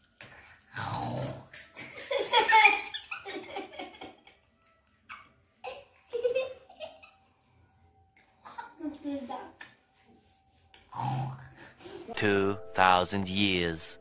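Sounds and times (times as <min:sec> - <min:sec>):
boys laughing: 0:01.8 - 0:04.4, 0:05.2 - 0:07.4.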